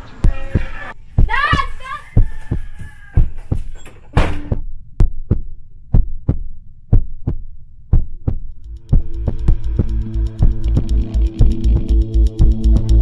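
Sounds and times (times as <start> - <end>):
heartbeat thumps: 0.2 - 13.0
music with held tones: 8.7 - 13.0.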